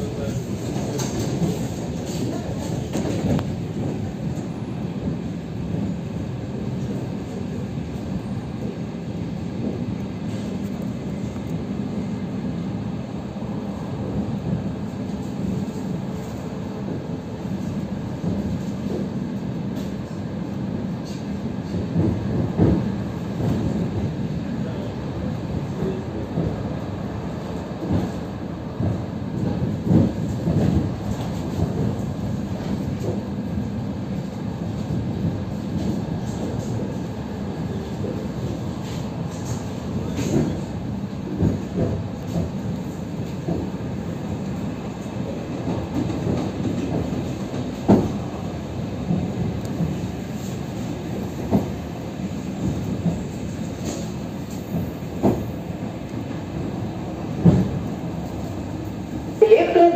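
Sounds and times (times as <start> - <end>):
train wheels rumbling on track: 0.0 - 59.9
train knocks: 21.0 - 24.1, 38.1 - 43.8, 45.0 - 55.6, 56.7 - 58.3.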